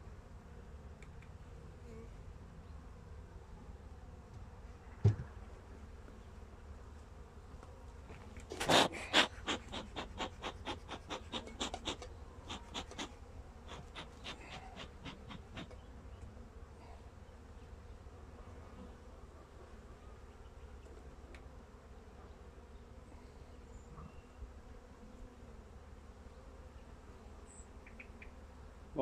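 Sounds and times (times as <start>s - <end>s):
bees buzzing: 4.8s - 19.2s.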